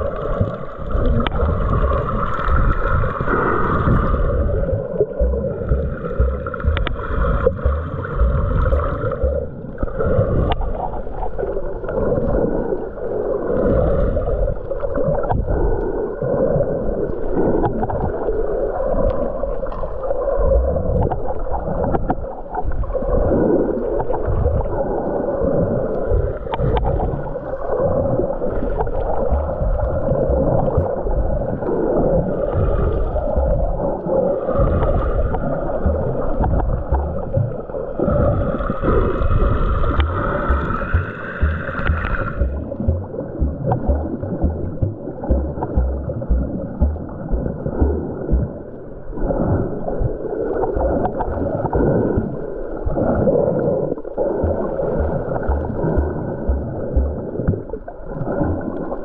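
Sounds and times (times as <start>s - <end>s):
underwater churning and gurgling: 0.0s - 59.0s.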